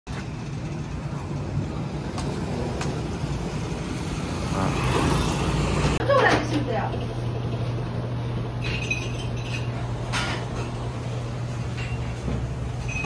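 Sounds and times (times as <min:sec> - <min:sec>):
street traffic hum: 0:00.1 - 0:13.0
motor scooter passing: 0:00.3 - 0:06.9.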